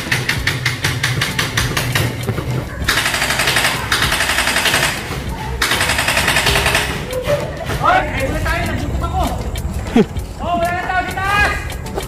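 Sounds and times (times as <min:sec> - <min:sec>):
steady rapid ticking: 0:00.0 - 0:12.0
airsoft guns firing bursts: 0:02.8 - 0:07.2.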